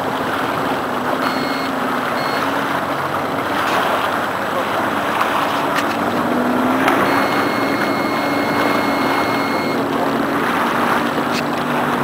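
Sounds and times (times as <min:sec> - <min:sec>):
constant rushing noise: 0:00.0 - 0:12.0
motor droning: 0:01.0 - 0:03.5, 0:05.7 - 0:11.3
faint high steady tone: 0:01.2 - 0:02.4, 0:07.1 - 0:09.8.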